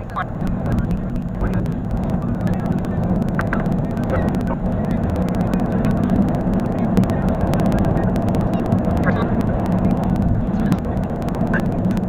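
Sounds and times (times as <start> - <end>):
road and engine noise: 0.0 - 12.0
sharp clicks: 0.0 - 12.0.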